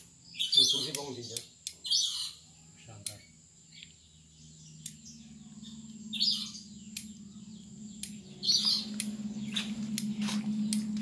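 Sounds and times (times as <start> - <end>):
steady low hum: 0.0 - 11.0
scissors snipping twigs: 0.8 - 1.8, 6.9 - 7.2.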